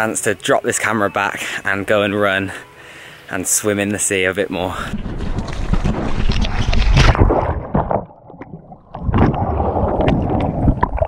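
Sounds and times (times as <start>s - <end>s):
water splashing and sloshing: 4.6s - 11.0s
wind on microphone: 4.7s - 7.9s.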